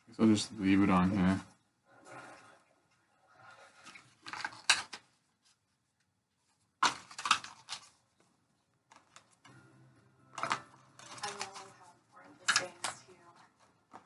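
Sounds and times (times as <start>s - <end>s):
plastic parts clicking: 3.8s - 5.1s, 6.8s - 8.0s, 12.4s - 13.1s.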